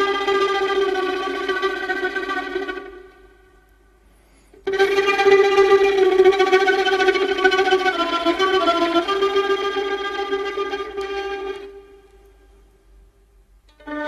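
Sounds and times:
instrumental music with held notes: 0.0 - 12.7.

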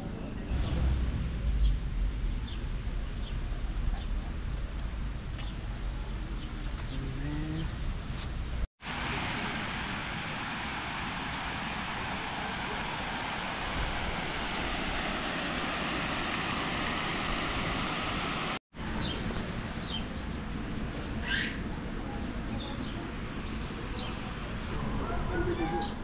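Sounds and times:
steady rushing noise: 8.8 - 18.9.

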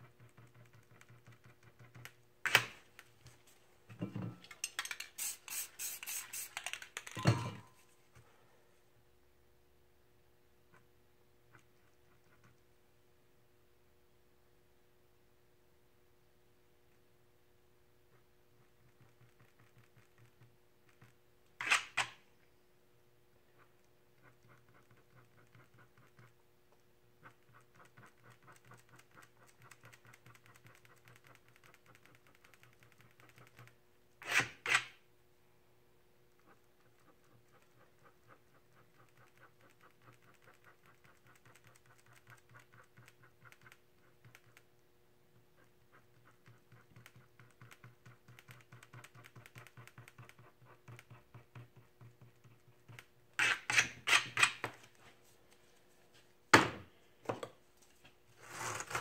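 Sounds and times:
tool scratching painted sheet: 0.0 - 2.1, 5.2 - 7.0, 18.1 - 22.1, 23.6 - 26.4, 27.2 - 35.0, 36.4 - 44.7, 45.4 - 54.6, 58.4 - 59.0
faint steady hum: 0.0 - 59.0.

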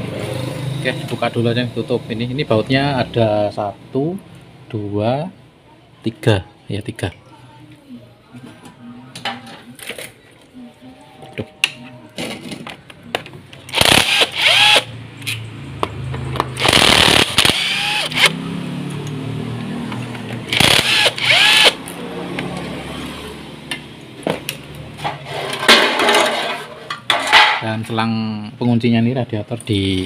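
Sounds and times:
power driver spinning: 13.7 - 14.9, 16.6 - 18.3, 20.5 - 21.8.

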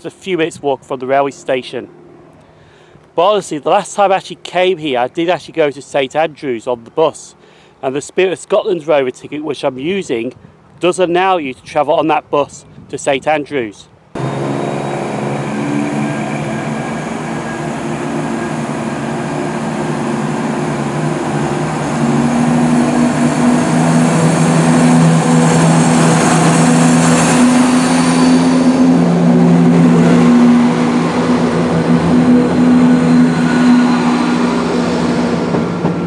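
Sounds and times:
diesel train engine drone: 0.0 - 5.0, 14.0 - 36.0
train carriages rolling past: 14.2 - 36.0.

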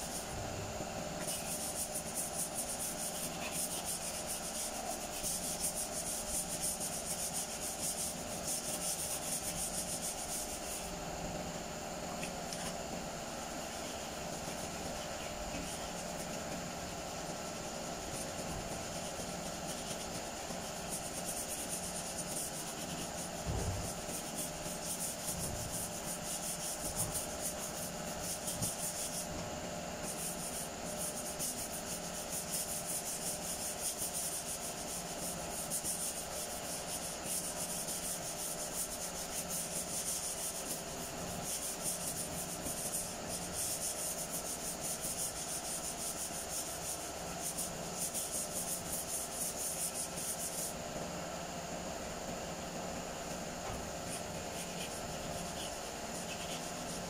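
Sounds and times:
sandpaper rubbing on car panel: 1.3 - 10.9, 17.6 - 29.3, 30.0 - 50.7, 54.0 - 57.0.

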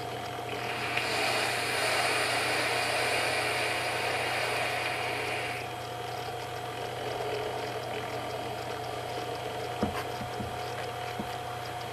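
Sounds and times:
faint regular ticking: 0.0 - 1.2, 1.8 - 11.9
steady hum: 0.0 - 11.9
vape draw hiss: 0.6 - 5.6.

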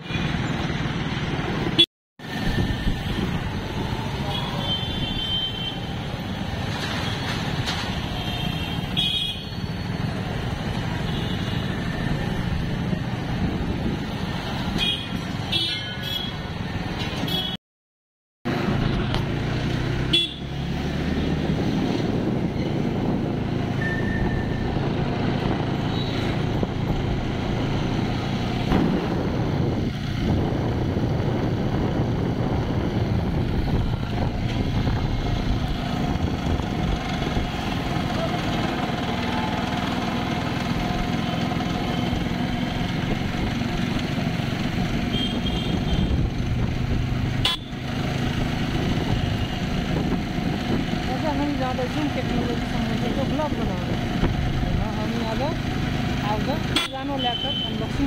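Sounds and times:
road and wind noise: 0.0 - 17.6, 18.4 - 58.0
vehicle horns tooting: 20.1 - 20.5, 45.1 - 46.2, 47.4 - 47.8, 56.7 - 57.9.

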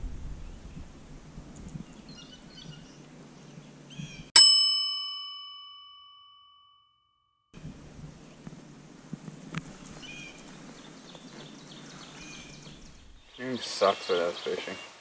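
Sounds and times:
bright bell ding: 4.4 - 6.9
faint outdoor hush: 7.6 - 15.0.

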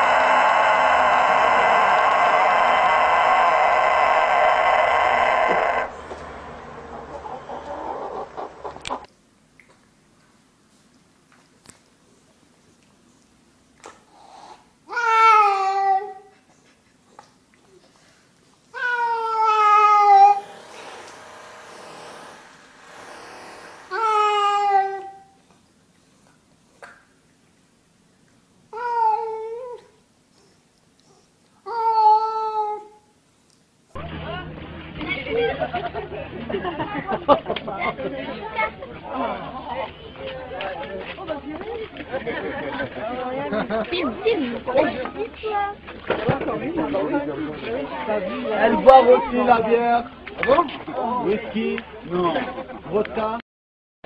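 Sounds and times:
rooster crowing: 0.0 - 6.0
hens clucking: 0.0 - 9.1
cat yowling: 18.8 - 20.5, 23.9 - 25.3.

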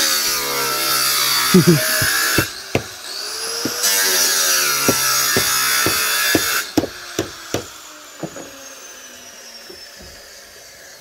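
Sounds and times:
angle grinder cutting: 0.0 - 8.5
sharp knocks: 1.9 - 3.0, 4.8 - 8.4.

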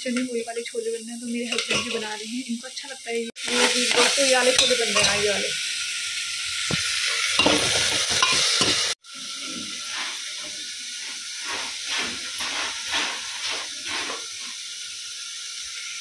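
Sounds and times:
food sizzling in oil: 0.0 - 16.0
metal ladle scraping pot: 6.7 - 8.9, 11.4 - 14.5.

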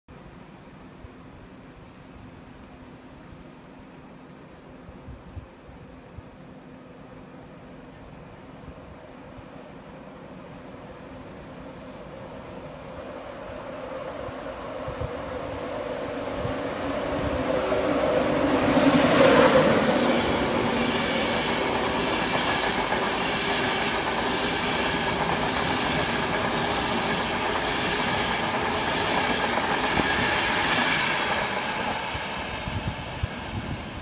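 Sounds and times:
electric locomotive passing: 9.0 - 34.0.

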